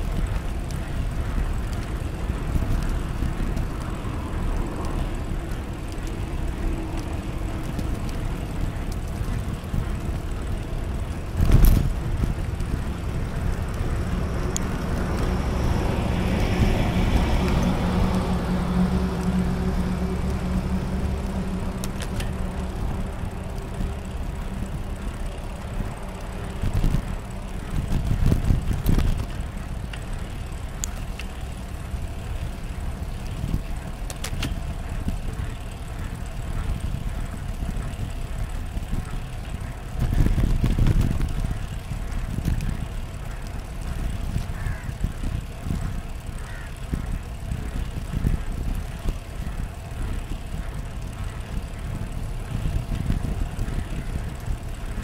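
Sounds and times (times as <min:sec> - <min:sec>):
bicycle rumbling on paved path: 0:00.0 - 0:55.0
motor vehicle passing: 0:00.0 - 0:55.0.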